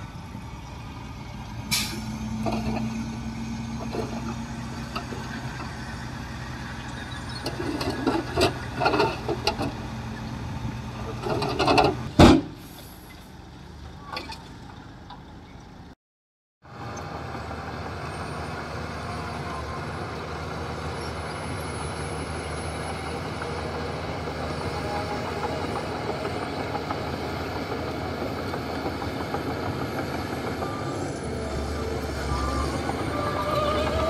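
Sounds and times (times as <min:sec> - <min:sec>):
heavy diesel machinery rumbling: 0:00.0 - 0:16.0, 0:16.7 - 0:34.0
pitched squeal: 0:30.4 - 0:34.0.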